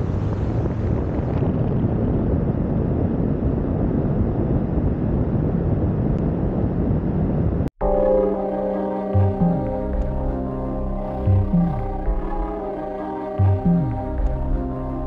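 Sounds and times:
wind rumble on microphone: 0.0 - 7.7.

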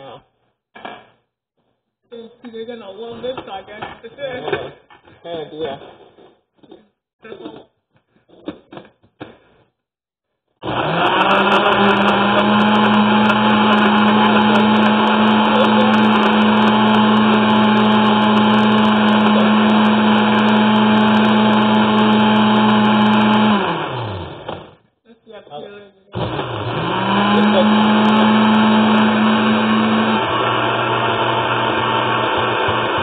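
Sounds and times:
blender motor running: 10.6 - 24.8, 26.1 - 33.0.

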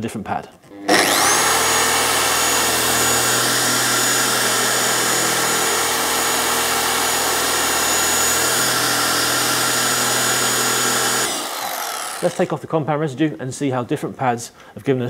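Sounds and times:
car polisher motor whine: 0.9 - 12.3.

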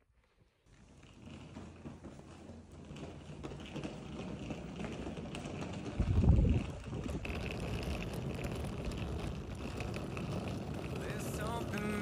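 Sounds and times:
suitcase wheels rolling on pavement: 0.0 - 12.0
wind on microphone: 5.9 - 8.1.

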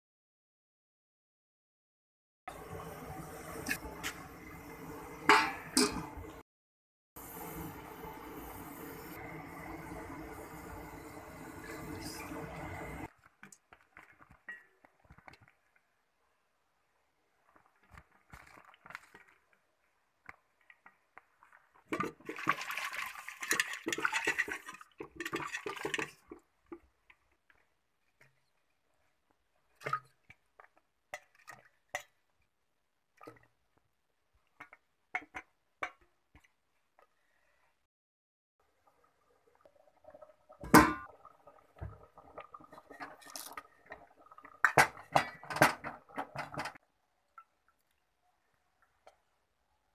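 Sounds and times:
spoon and liquid sounds: 20.6 - 32.5, 40.0 - 48.2.

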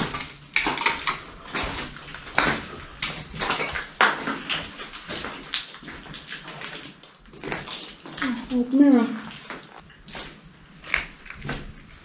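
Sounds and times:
footsteps crunching over debris: 0.0 - 8.3.

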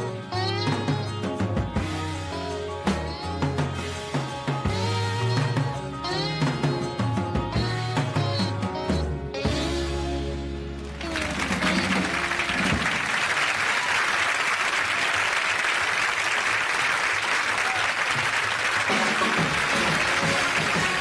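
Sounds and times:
audience applauding: 10.8 - 21.0.

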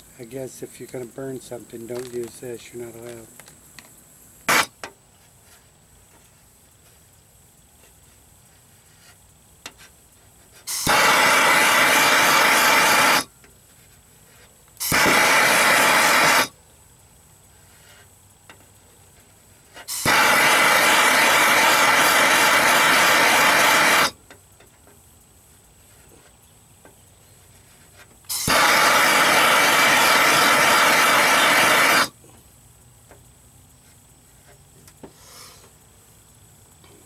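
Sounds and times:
gas torch flame hissing: 1.9 - 4.8, 10.6 - 13.3, 14.8 - 16.6, 19.7 - 24.2, 28.3 - 32.2.

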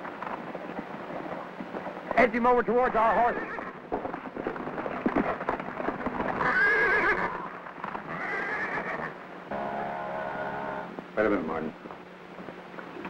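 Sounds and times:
horse whinnying: 3.0 - 3.8, 6.2 - 10.9.

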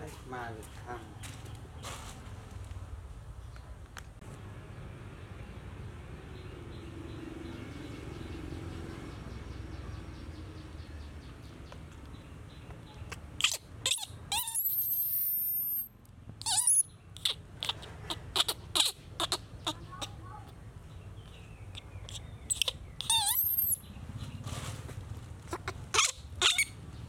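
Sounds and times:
baby monkey squealing: 13.4 - 20.2, 21.8 - 23.8, 25.5 - 26.8.

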